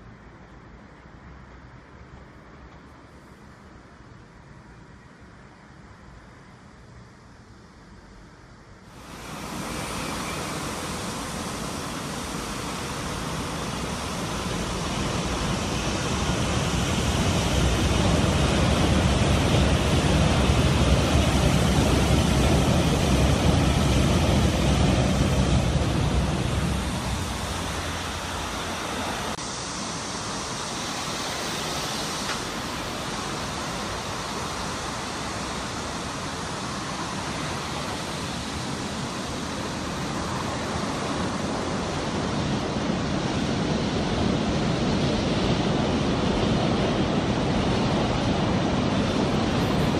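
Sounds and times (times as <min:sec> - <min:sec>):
train wheels rumbling on rail: 0:08.9 - 0:49.9.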